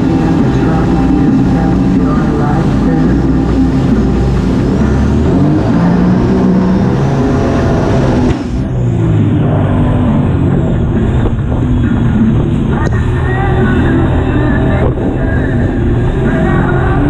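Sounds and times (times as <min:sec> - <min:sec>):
water splashing: 0:00.0 - 0:17.0
watercraft engine running hard: 0:00.0 - 0:17.0.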